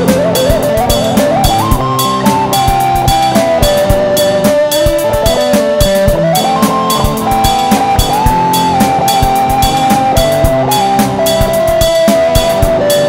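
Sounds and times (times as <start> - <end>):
drum kit beat: 0.0 - 13.0
lead melody with held notes: 0.0 - 13.0.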